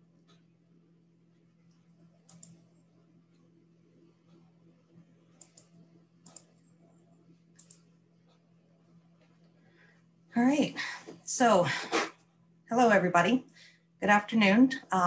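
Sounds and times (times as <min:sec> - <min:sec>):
low electrical hum: 0:00.0 - 0:15.0
computer mouse double clicks: 0:02.3 - 0:02.6, 0:07.6 - 0:07.8.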